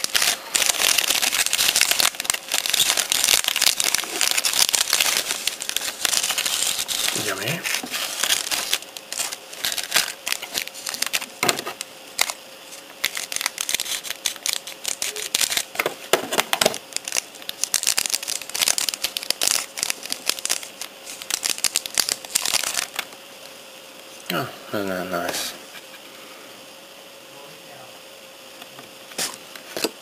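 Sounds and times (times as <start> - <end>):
plastic wrapper crinkling: 0.0 - 23.1.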